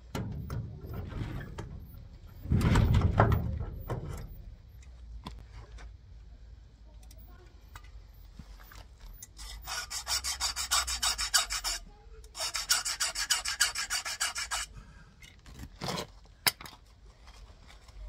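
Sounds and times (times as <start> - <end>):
file rasping on metal: 9.4 - 14.7.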